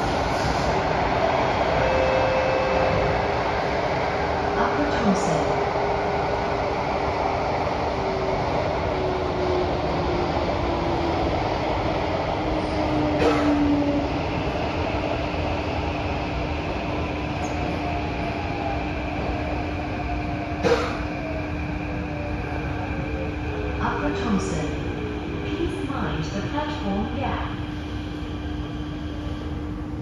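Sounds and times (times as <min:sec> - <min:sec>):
train whining tone: 0:00.0 - 0:15.5
train wheels rumbling on rail: 0:00.0 - 0:30.0.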